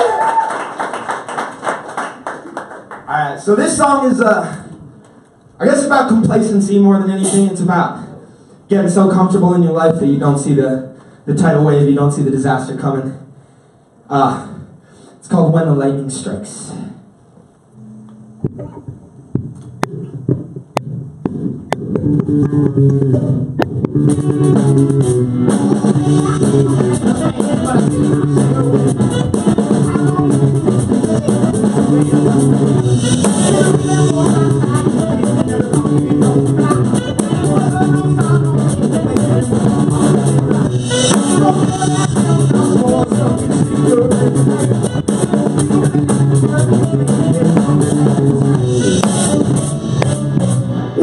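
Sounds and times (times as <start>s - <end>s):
live rock band playing: 22.0s - 51.0s.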